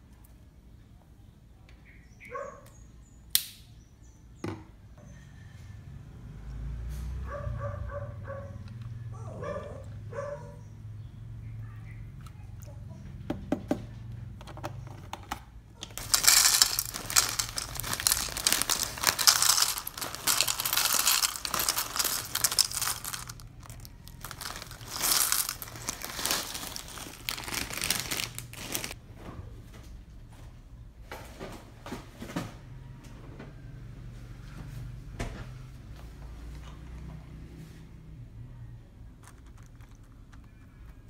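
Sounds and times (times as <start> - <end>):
plastic bag crinkling: 15.9 - 29.0
cereal pouring into bowl: 16.0 - 29.0.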